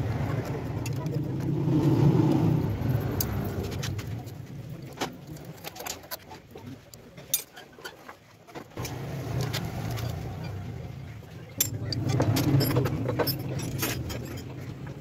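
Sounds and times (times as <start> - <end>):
metallic clicks of tools handled: 7.3 - 7.9, 11.6 - 14.6.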